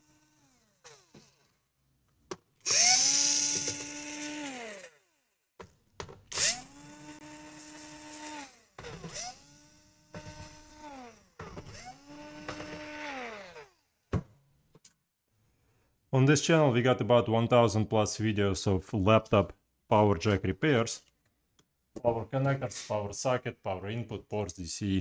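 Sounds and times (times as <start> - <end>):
cordless screwdriver spinning: 0.0 - 1.7, 2.6 - 5.4, 6.3 - 13.8.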